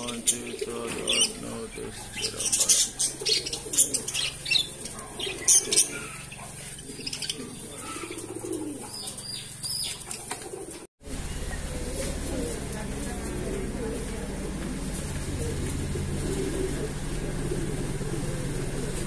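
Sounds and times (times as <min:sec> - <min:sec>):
steady low hum: 0:00.0 - 0:09.9, 0:11.0 - 0:19.0
pigeons cooing: 0:00.0 - 0:19.0
wing flaps: 0:11.8 - 0:19.0.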